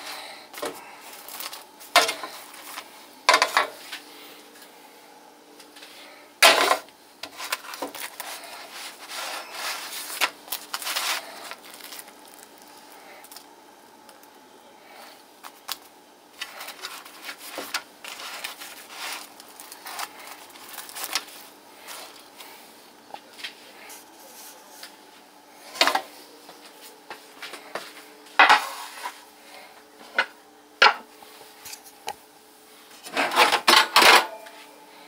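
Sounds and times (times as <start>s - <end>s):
faint steady hum: 0.0s - 35.0s
scraping and rubbing: 7.2s - 12.1s, 16.4s - 22.5s.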